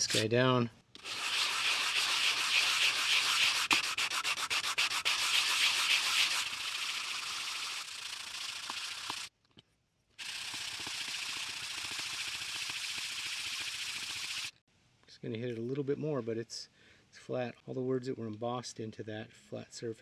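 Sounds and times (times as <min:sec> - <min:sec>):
plastic scraping on sandpaper: 0:00.0 - 0:00.4, 0:01.0 - 0:09.3.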